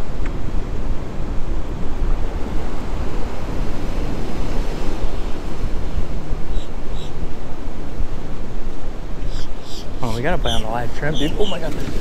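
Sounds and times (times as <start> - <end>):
ocean surf breaking: 0.0 - 12.0
wind buffeting microphone: 0.0 - 12.0.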